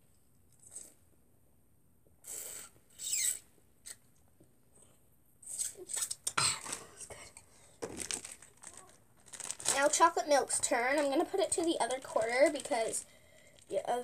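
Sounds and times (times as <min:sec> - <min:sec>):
plastic bag crinkling: 0:06.6 - 0:14.0
slurping from plastic bag: 0:07.9 - 0:10.0.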